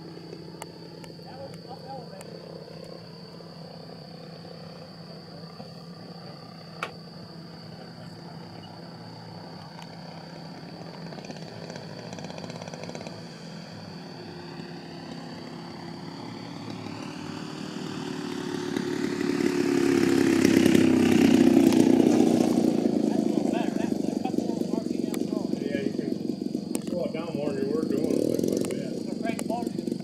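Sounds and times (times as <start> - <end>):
model airplane engine running: 0.0 - 30.0.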